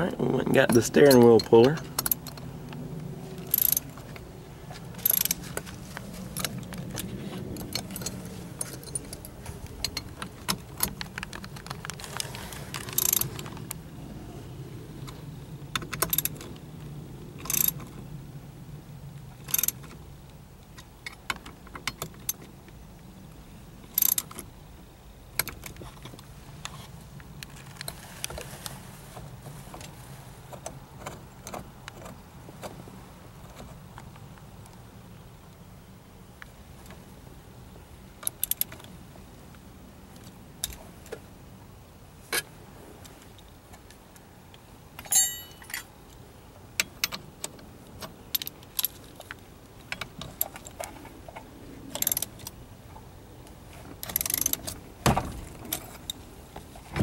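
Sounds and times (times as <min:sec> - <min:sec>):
metallic wrench clicks: 0:03.5 - 0:03.9, 0:05.0 - 0:05.4, 0:12.8 - 0:13.3, 0:17.4 - 0:17.8, 0:19.5 - 0:19.8, 0:23.9 - 0:24.4, 0:54.0 - 0:54.7.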